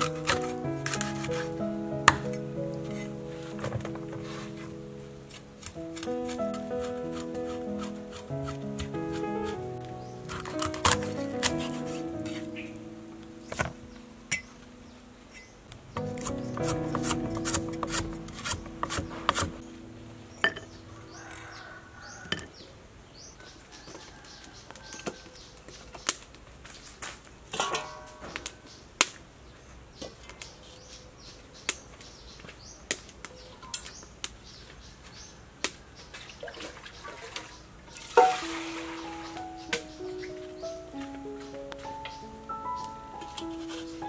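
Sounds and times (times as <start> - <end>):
wood fire crackling: 0.0 - 14.7
metal pot clattering: 27.5 - 28.4.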